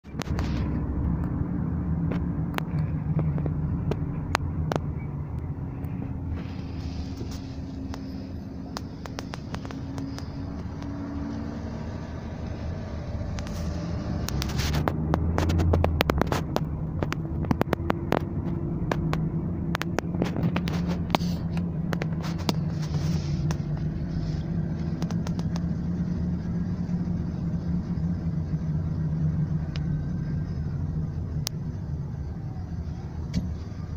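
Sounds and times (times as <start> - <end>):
car engine hum: 0.0 - 33.9
road rumble: 0.0 - 33.9.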